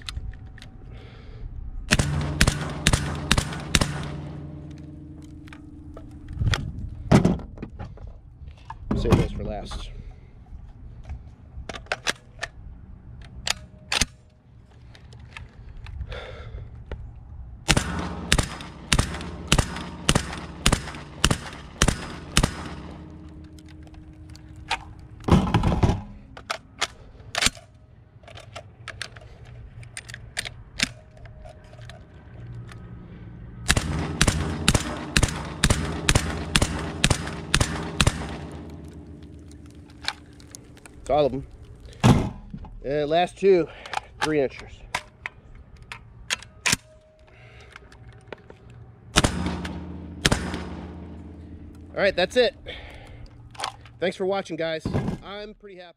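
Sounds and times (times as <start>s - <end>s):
suppressed shotgun shots: 1.9s - 6.3s, 17.7s - 24.0s, 33.7s - 40.6s, 49.2s - 51.9s.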